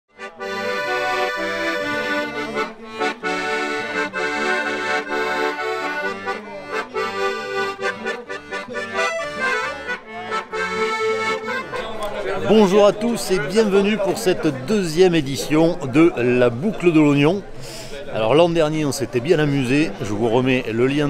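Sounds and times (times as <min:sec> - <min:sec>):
instrumental music with bass line: 0:00.1 - 0:12.2.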